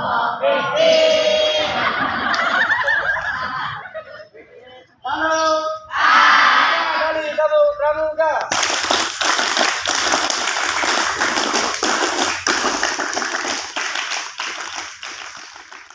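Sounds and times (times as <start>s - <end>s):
crowd applauding: 8.5s - 15.9s.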